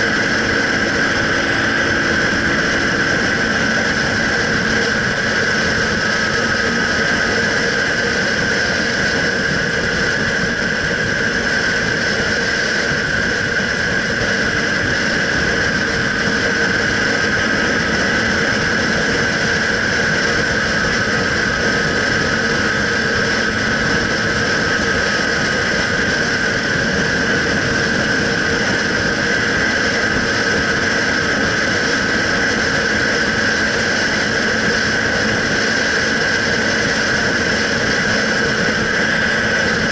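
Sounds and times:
motorcycle engine cruising: 0.0s - 39.9s
wind and road noise: 0.0s - 39.9s.

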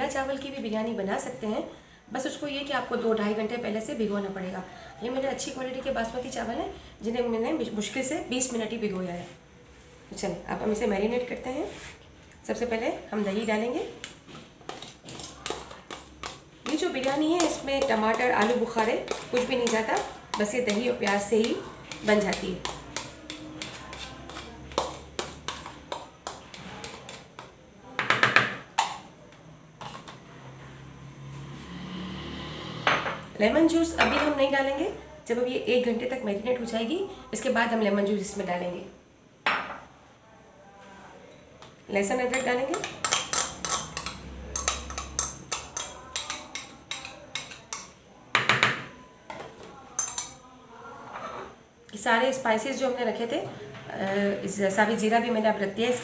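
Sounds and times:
spoon clinking on glass bowl: 50.0s - 50.4s.

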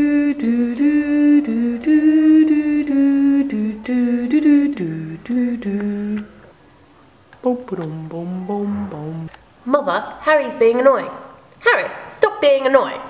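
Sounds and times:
person humming a tune: 0.0s - 6.4s, 7.4s - 9.3s.

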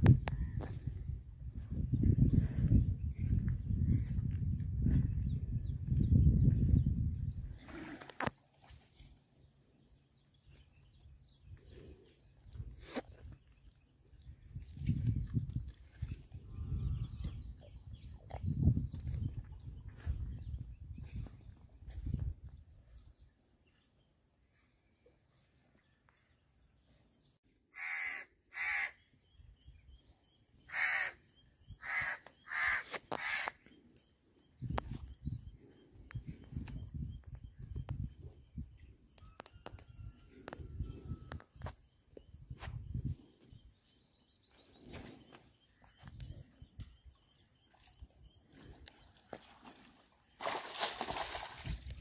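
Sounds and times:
crow cawing: 27.7s - 29.0s, 30.7s - 31.2s, 31.8s - 33.5s.

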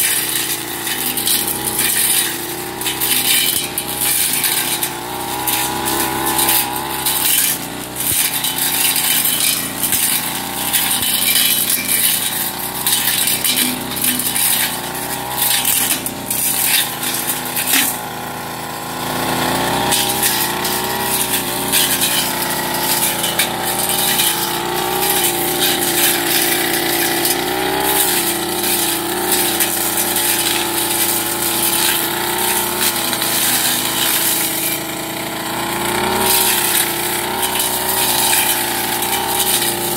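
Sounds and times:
debris crackling against cutting head: 0.0s - 18.4s, 19.6s - 39.9s
brush cutter engine running: 0.0s - 39.9s.

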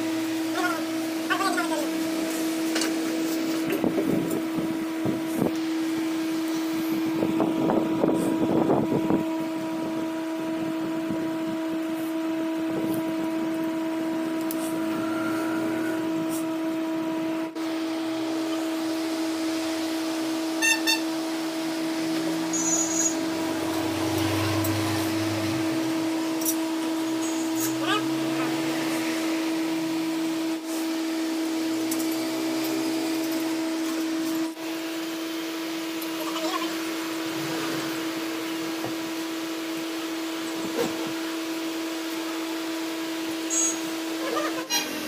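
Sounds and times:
steady hum: 0.0s - 44.9s.

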